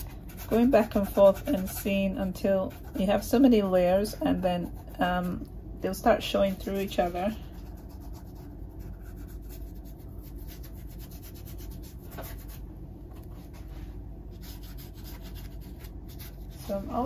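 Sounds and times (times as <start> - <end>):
paintbrush scratching canvas: 0.0 - 5.4, 6.3 - 12.6, 14.4 - 17.0.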